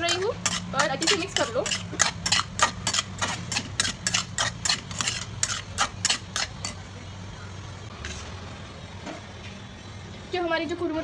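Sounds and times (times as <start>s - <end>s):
spatula scraping a pan: 0.0s - 6.8s.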